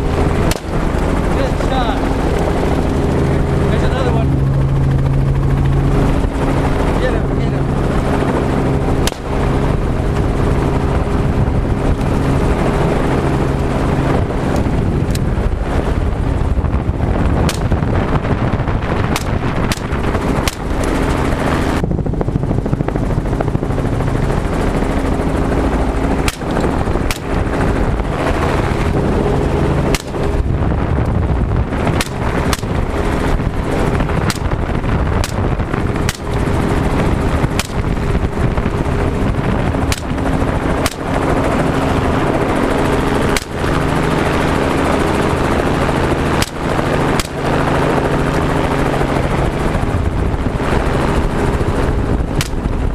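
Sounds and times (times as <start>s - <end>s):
helicopter engine and rotor: 0.0s - 52.9s
rifle shots: 0.4s - 1.2s, 9.0s - 9.5s, 19.2s - 20.8s, 26.2s - 27.5s, 29.9s - 30.3s, 35.2s - 35.4s, 36.0s - 36.5s, 37.5s - 37.9s, 39.9s - 40.2s, 40.8s - 41.2s, 46.4s - 47.5s.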